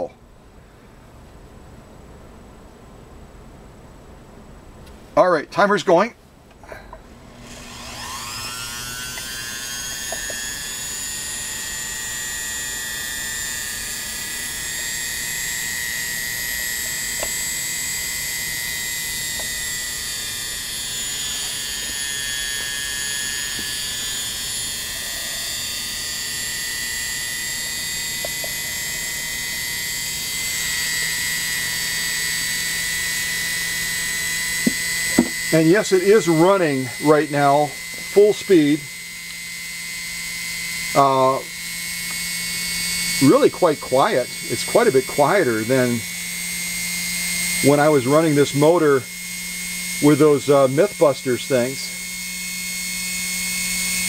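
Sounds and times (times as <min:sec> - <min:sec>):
sewing machine motor whining: 0:07.3 - 0:54.0.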